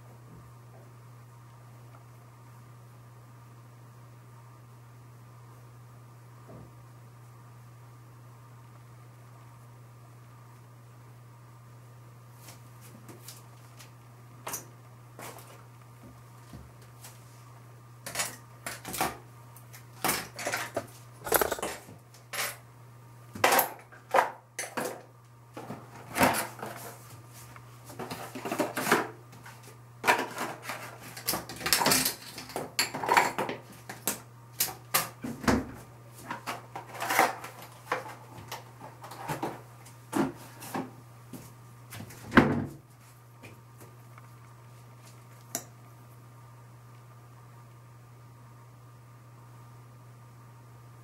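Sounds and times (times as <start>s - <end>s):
small objects clattering on hard surface: 20.4s - 22.5s.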